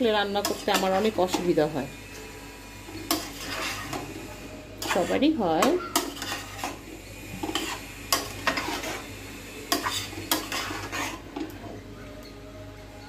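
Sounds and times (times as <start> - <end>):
low sizzle: 0.0 - 13.0
metal spatula scraping pot: 0.4 - 1.6, 3.0 - 4.1, 4.8 - 9.1, 9.7 - 11.6.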